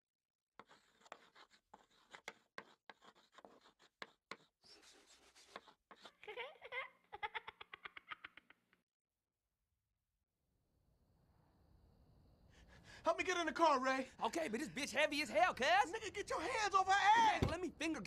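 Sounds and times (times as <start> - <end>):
crayon scribbling: 0.6 - 7.4
baby giggling and cooing: 6.0 - 8.8.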